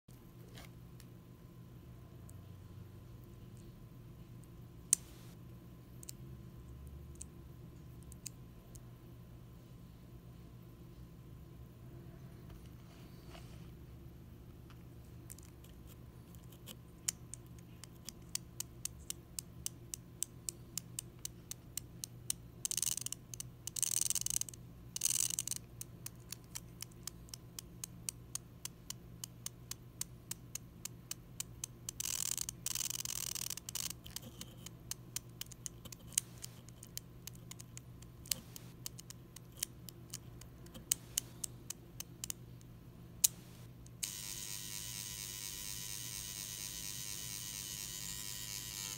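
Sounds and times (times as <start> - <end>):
sharp clicks: 17.0 - 48.9
tiny motor whirring: 44.0 - 48.9.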